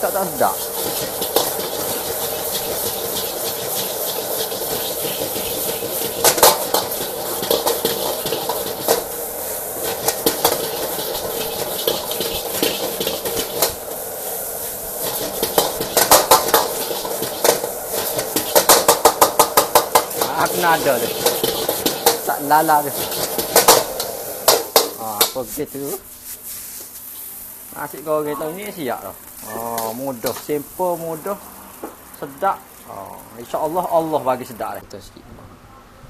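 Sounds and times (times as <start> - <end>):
food sizzling: 0.0 - 35.0
metal utensil scraping a wok: 0.3 - 25.5.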